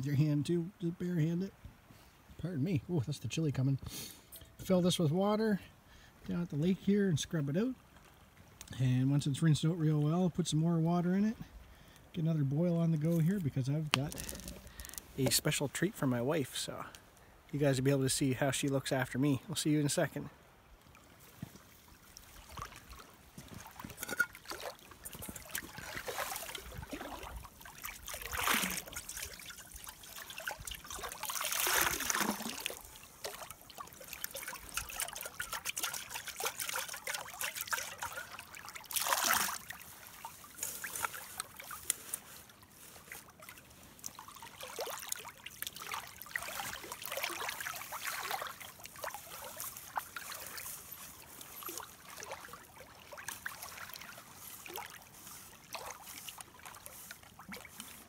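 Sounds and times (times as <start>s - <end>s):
water pouring and splashing: 12.2s - 19.2s, 20.8s - 58.0s
water sloshing in metal pot: 23.5s - 39.8s.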